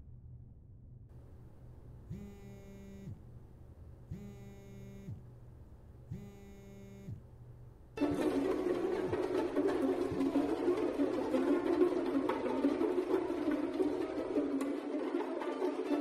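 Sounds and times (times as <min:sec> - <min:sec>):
mobile phone vibrating: 0:02.0 - 0:03.4, 0:04.1 - 0:05.4, 0:06.1 - 0:07.3
burst of music: 0:08.0 - 0:16.0.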